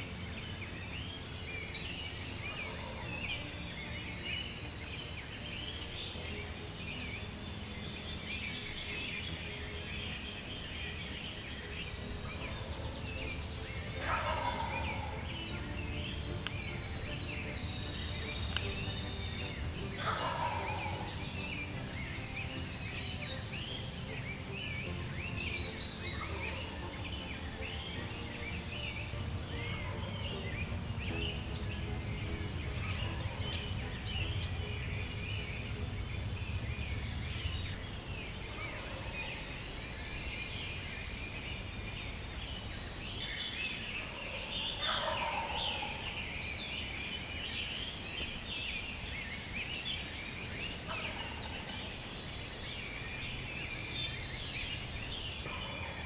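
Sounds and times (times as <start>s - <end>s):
songbirds dawn chorus: 0.0s - 56.0s
turkeys gobbling: 2.3s - 3.5s, 11.6s - 39.5s, 44.0s - 46.2s, 50.8s - 51.8s, 55.4s - 56.0s
low rumble: 30.6s - 38.8s.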